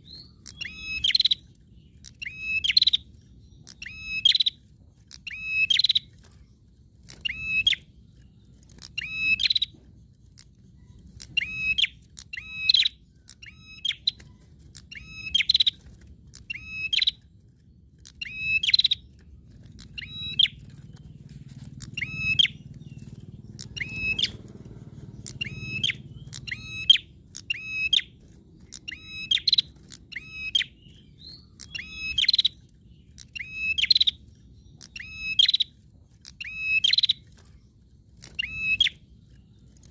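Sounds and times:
bird calling: 0.0 - 6.5, 7.1 - 17.4, 18.0 - 37.6, 38.2 - 39.9
faint low rumble: 0.0 - 31.9.

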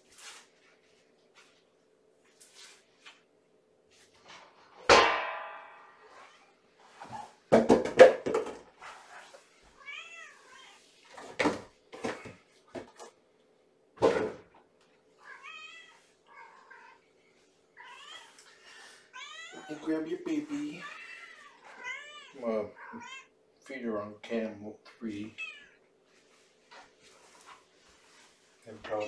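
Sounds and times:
cat meowing: 9.8 - 10.9, 15.2 - 17.0, 17.8 - 18.4, 19.1 - 19.8, 20.8 - 23.3, 25.3 - 25.8.

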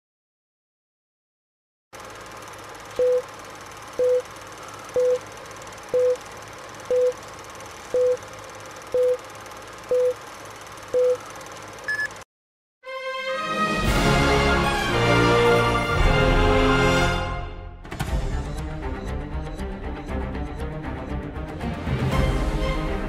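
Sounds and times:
short countdown beeps: 3.0 - 3.2, 4.0 - 4.2, 5.0 - 5.2, 6.0 - 6.2, 6.9 - 7.2, 7.9 - 8.2, 9.0 - 9.2, 9.9 - 10.2, 11.0 - 11.2, 18.5 - 21.3
higher beep: 5.0 - 5.2, 6.0 - 6.2, 6.9 - 7.2, 7.9 - 8.2, 9.0 - 9.2, 9.9 - 10.2, 11.0 - 11.2.

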